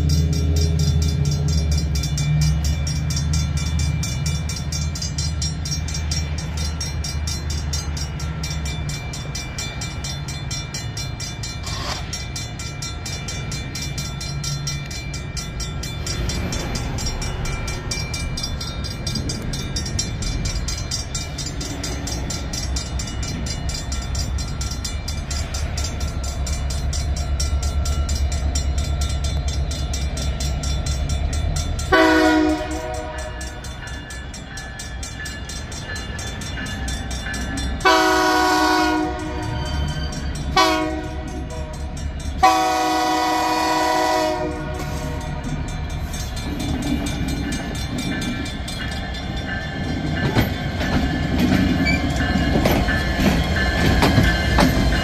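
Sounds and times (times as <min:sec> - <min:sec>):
crossing bell ringing: 0:00.0 - 0:55.0
diesel locomotive rumbling: 0:00.0 - 0:55.0
locomotive air horn blast: 0:31.9 - 0:33.3, 0:37.8 - 0:39.6, 0:40.6 - 0:41.7, 0:42.4 - 0:45.4.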